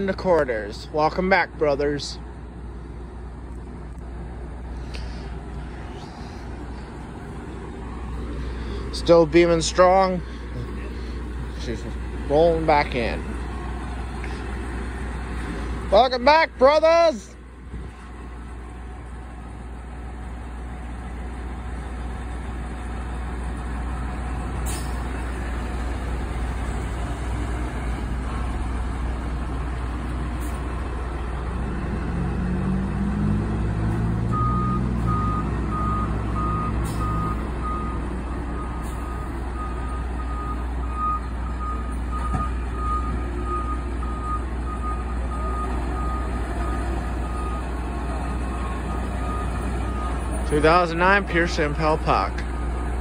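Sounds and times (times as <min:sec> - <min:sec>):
fire engine running: 0:00.0 - 0:53.0
reversing alarm beeping: 0:34.3 - 0:50.8.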